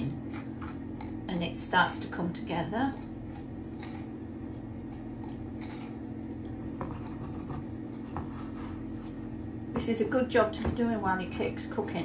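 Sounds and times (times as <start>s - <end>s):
low background hum: 0.0s - 12.0s
fork scraping glass bowl: 2.9s - 4.2s, 4.9s - 6.0s.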